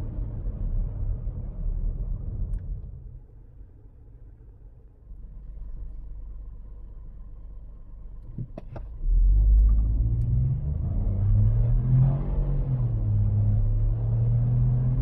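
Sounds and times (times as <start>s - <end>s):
car engine idling: 0.3s - 9.0s
car accelerating at full throttle: 9.0s - 15.0s.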